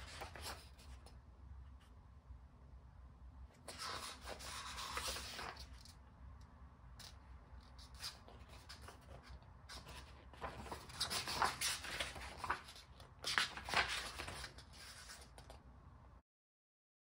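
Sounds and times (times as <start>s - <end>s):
paper and card rustling: 0.0s - 1.2s, 3.6s - 6.0s, 7.0s - 15.6s.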